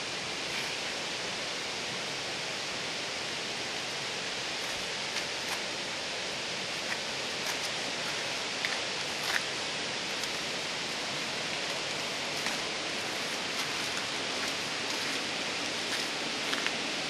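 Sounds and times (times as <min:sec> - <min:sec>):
rushing falling water: 0:00.0 - 0:17.0.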